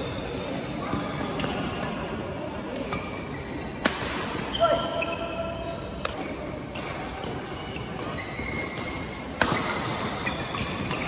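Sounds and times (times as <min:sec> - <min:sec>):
racket hitting shuttlecock: 0:03.8 - 0:04.4, 0:06.0 - 0:11.0
shoe squeaks on court: 0:07.6 - 0:11.0.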